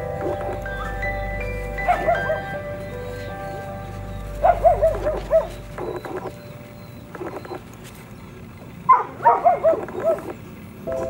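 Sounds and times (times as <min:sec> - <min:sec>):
puppy yipping: 0:01.8 - 0:06.5, 0:08.9 - 0:10.4.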